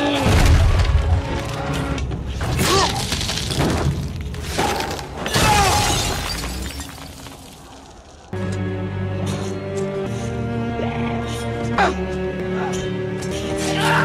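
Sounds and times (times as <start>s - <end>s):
crashing and impacts: 2.5s - 8.1s.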